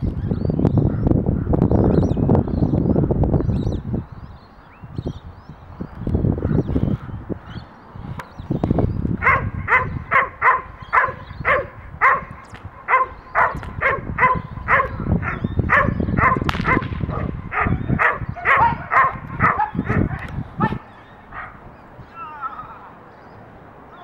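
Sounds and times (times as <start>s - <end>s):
dog barking aggressively: 9.2s - 21.6s.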